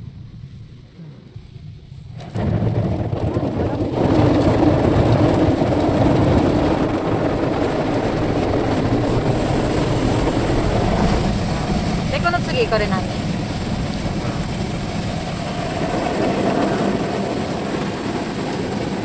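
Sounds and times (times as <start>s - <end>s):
car wash spray and brushes: 0.2s - 19.0s.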